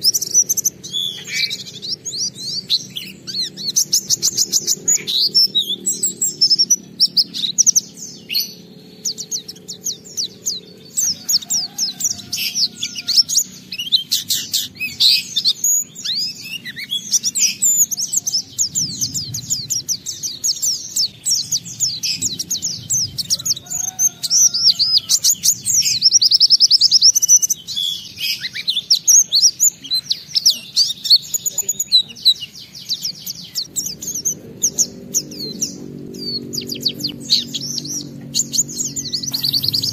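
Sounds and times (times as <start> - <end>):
bird twittering song: 0.0 - 39.9.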